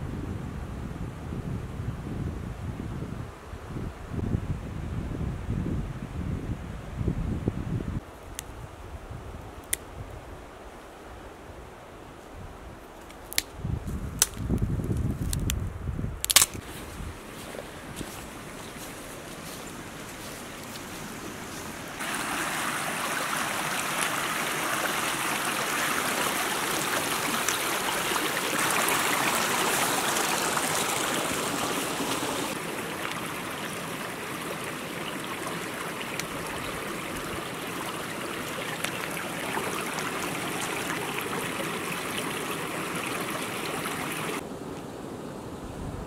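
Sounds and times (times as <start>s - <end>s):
stream running over stones: 17.3s - 44.4s.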